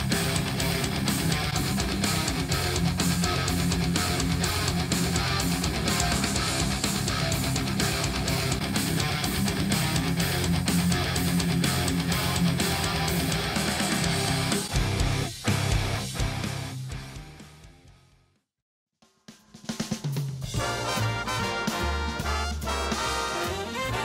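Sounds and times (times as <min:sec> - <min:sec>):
heavy metal music through speakers: 0:00.0 - 0:18.0, 0:20.5 - 0:24.0.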